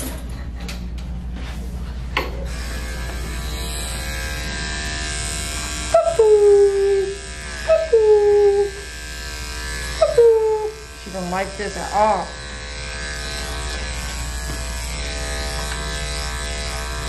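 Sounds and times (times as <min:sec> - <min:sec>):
electric dog clipper humming: 0:02.1 - 0:17.0
small dog whining: 0:10.0 - 0:10.8.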